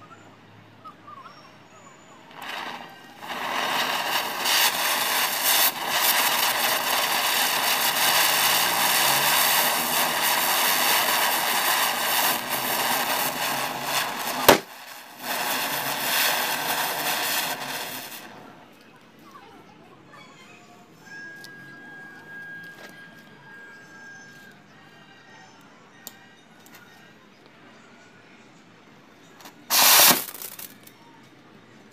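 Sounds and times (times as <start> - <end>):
firecracker sparks hissing: 2.2 - 18.6, 29.7 - 30.9
firecracker bang: 2.3 - 18.4, 29.7 - 30.7
firecracker crackles: 2.3 - 18.7, 29.4 - 30.9.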